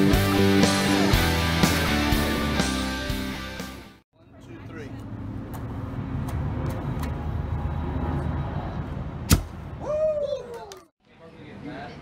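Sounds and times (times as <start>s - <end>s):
person exclaiming: 9.8s - 10.9s.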